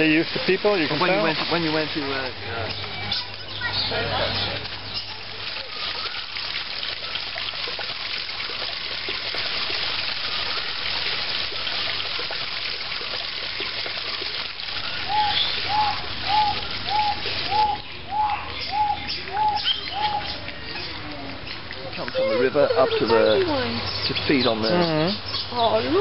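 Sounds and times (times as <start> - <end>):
water trickling and splashing: 0.0 - 26.0
bird hooting: 15.1 - 20.4.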